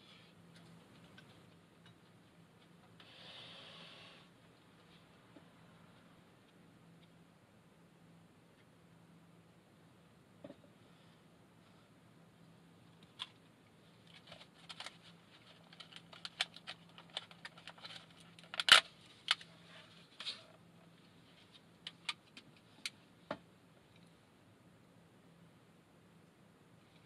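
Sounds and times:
plastic pack crinkling and clicks: 0:14.1 - 0:19.5.

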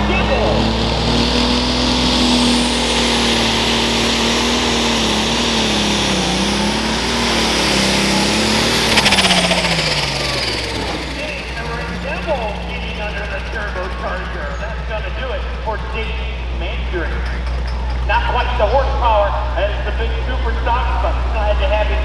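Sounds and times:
turbo whine: 0:00.0 - 0:18.5
rapid pulsing engine burst: 0:00.0 - 0:22.0
tractor engine running hard: 0:00.0 - 0:22.0.

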